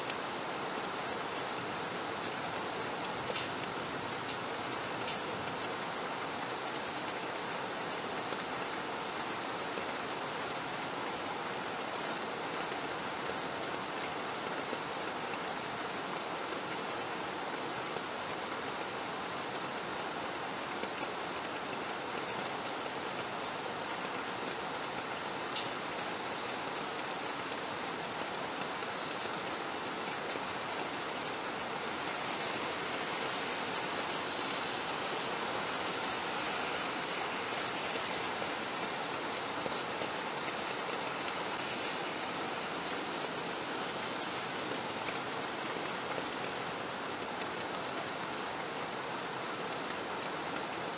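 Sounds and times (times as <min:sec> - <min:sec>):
steady rain falling: 0:00.0 - 0:50.9
faint tick: 0:25.5 - 0:25.8.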